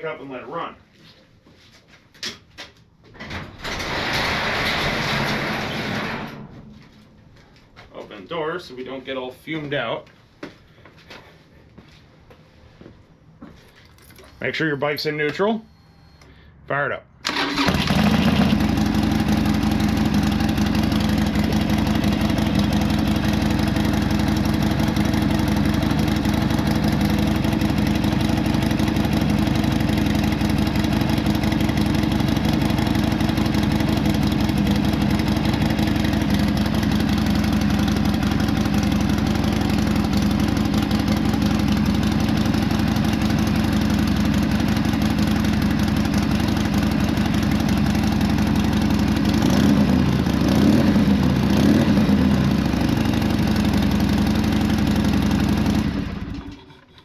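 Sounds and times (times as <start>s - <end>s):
motorcycle engine idling: 17.8s - 56.5s.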